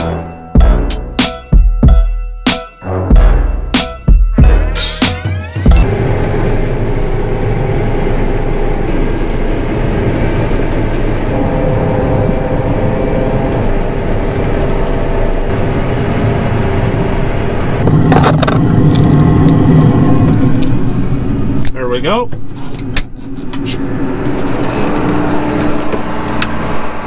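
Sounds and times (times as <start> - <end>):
combine harvester engine drone: 4.5 - 27.0.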